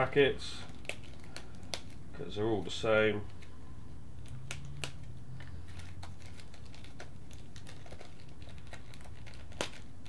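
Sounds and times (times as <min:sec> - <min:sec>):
plastic packets crinkling: 0:00.6 - 0:02.2, 0:04.2 - 0:10.0.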